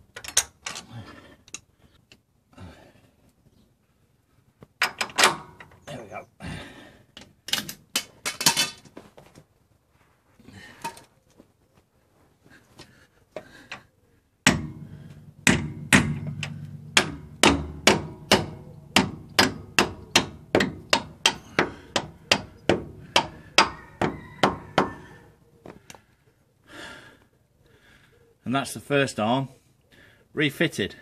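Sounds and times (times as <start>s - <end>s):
mallet striking steel: 14.5s - 23.7s.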